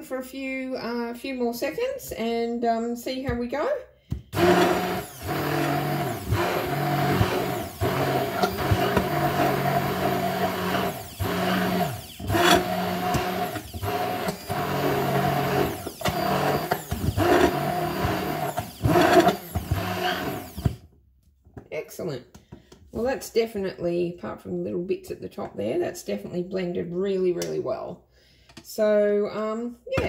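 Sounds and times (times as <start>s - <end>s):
immersion blender motor: 4.3s - 20.9s.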